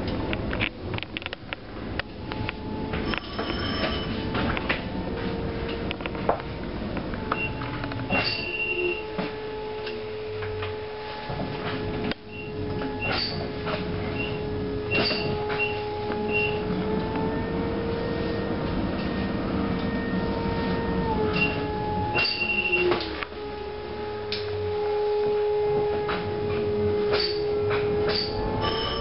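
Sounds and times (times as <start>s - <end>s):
rumble of moving bus: 0.0s - 29.0s
electric motor whine: 2.3s - 29.0s
short high squeaks: 7.4s - 9.1s, 12.4s - 13.5s, 14.2s - 16.6s, 22.2s - 22.9s, 28.1s - 29.0s.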